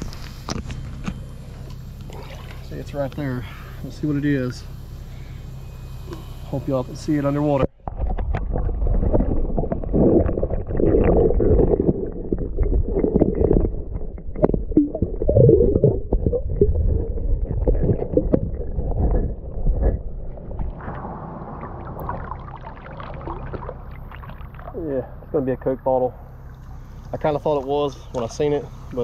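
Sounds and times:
muffled underwater sloshing and gurgling: 1.4s - 29.0s.

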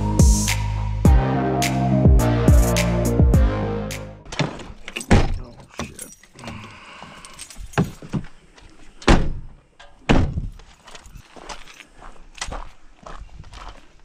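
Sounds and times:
thud: 10.1s - 10.6s.

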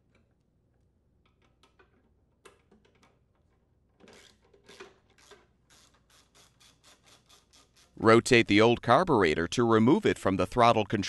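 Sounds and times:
socket ratchet clicks: 4.1s - 8.0s.

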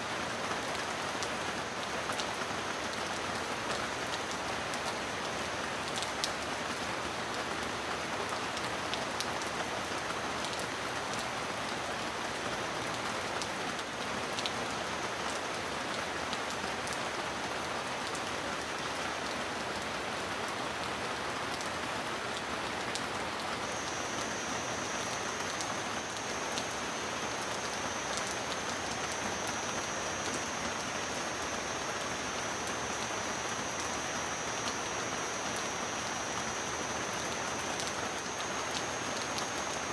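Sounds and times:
heavy rain falling: 0.0s - 39.9s
thin high steady tone: 23.6s - 39.9s.

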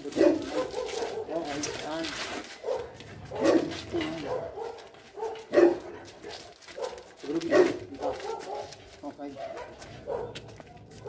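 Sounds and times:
dog barking: 0.0s - 11.0s.

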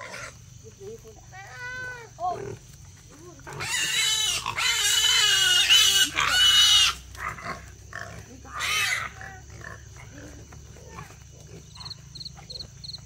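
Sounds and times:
piglets squealing: 3.5s - 7.6s, 8.5s - 9.4s.

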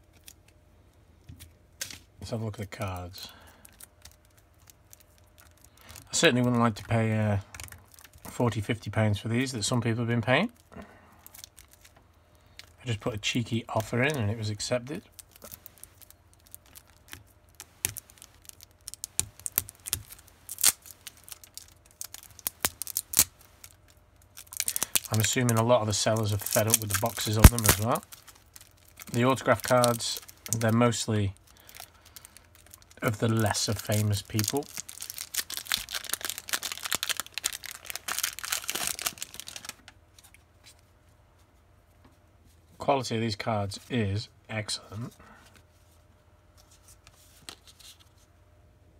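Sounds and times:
plastic wrap crinkling and tearing: 2.8s - 8.3s, 10.5s - 12.0s, 13.7s - 40.0s.

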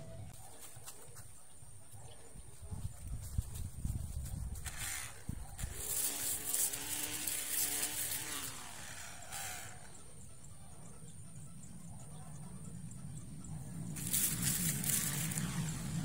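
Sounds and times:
string trimmer cutting grass: 4.5s - 10.1s, 14.0s - 16.0s.

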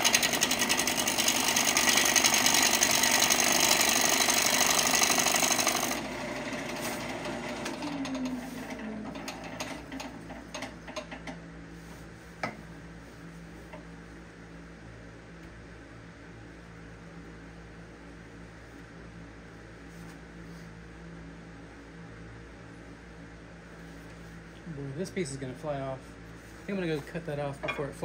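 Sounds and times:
gouge rasping on spinning wood: 0.0s - 7.7s
lathe humming: 0.0s - 11.3s.

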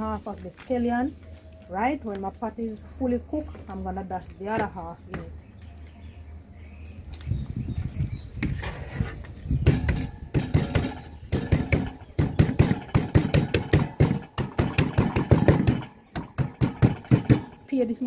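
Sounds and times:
rapid knocks crushing seasoning: 9.6s - 17.7s.

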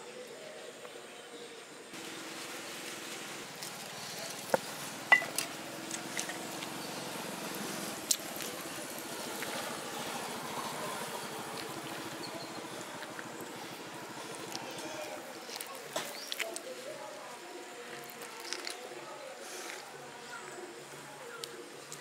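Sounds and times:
small engine running: 2.0s - 14.7s.

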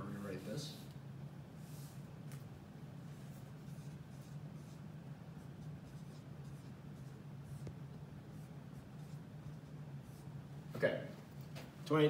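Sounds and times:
steady low hum: 0.0s - 12.0s
marker writing on whiteboard: 1.6s - 10.4s.

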